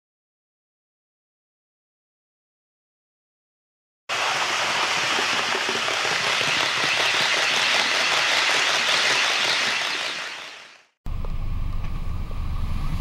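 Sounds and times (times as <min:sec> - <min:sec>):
model train wheels rattling: 0:04.3 - 0:10.8.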